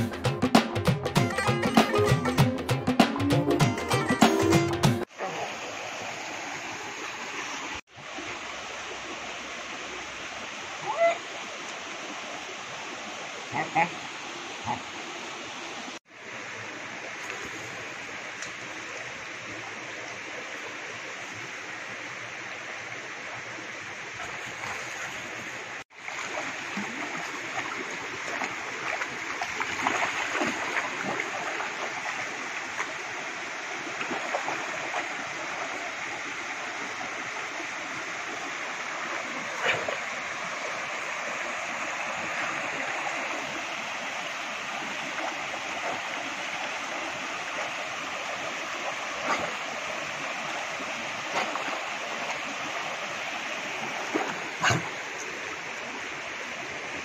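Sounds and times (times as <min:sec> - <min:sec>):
rocky river running: 0:05.0 - 0:57.0
dog wading through water: 0:24.2 - 0:33.0.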